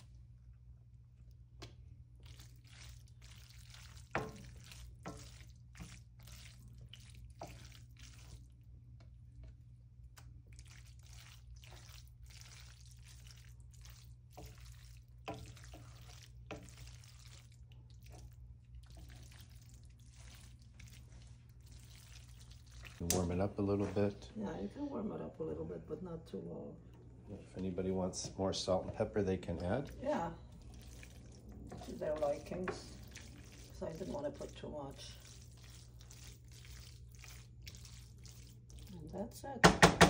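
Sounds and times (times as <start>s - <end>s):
spoon squishing and scraping food: 0.0s - 24.2s, 27.6s - 39.9s
low steady hum: 0.0s - 40.0s
spoon knocking against pan: 39.6s - 40.0s.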